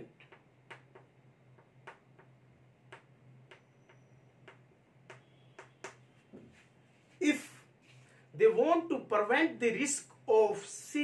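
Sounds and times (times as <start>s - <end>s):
low electrical hum: 0.0s - 11.0s
chalk tapping on blackboard: 0.2s - 6.6s.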